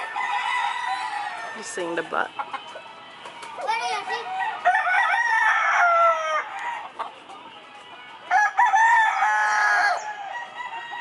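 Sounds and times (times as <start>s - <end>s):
rooster crowing: 0.0s - 1.9s, 4.2s - 6.9s, 8.3s - 11.0s.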